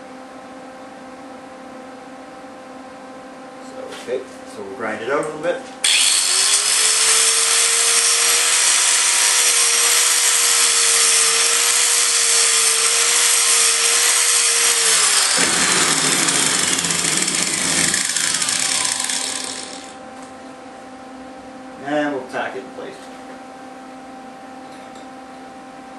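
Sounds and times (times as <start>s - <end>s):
angle grinder grinding steel: 5.8s - 20.0s.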